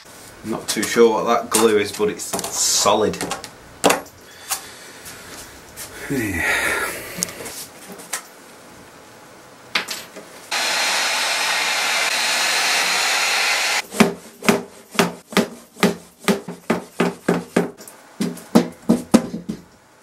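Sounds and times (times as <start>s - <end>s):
heat gun blowing: 10.5s - 13.8s.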